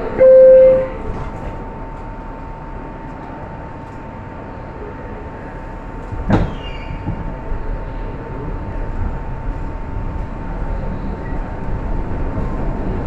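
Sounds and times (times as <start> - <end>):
equipment hum: 0.0 - 6.1.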